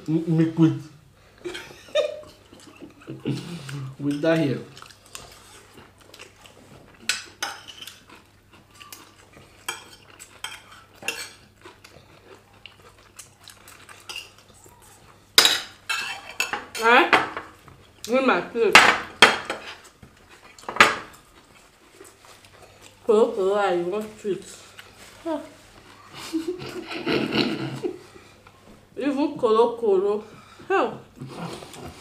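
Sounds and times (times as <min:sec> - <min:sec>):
forks clinking on plates: 0:15.4 - 0:17.4.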